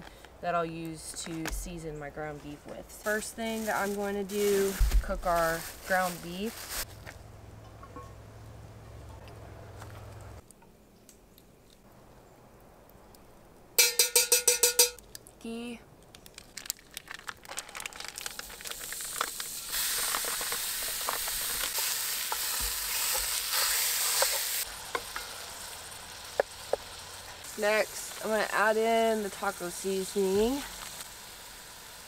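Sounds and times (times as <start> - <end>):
ground beef sizzling: 16.6 - 32.0.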